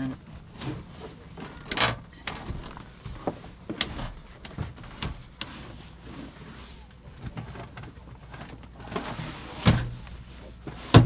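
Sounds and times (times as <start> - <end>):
seat scraping: 0.4 - 7.5, 8.7 - 11.0
seat clunks and knocks: 8.9 - 11.0.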